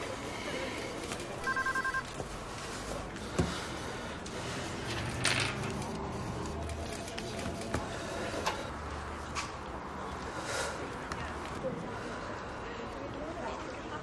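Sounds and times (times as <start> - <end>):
rapid electronic beeping: 1.4 - 2.0.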